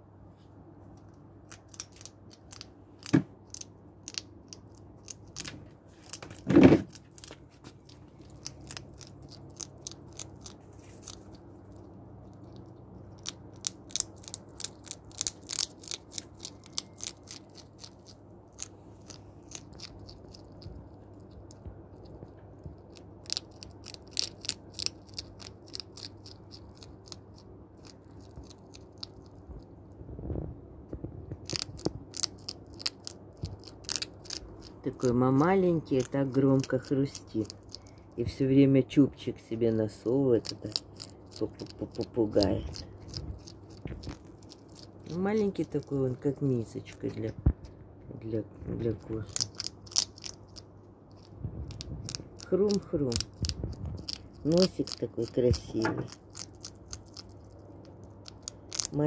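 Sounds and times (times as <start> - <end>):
hedgehog crunching kibble: 0.9 - 30.0, 31.3 - 38.4, 39.0 - 59.0
thump: 6.4 - 6.9.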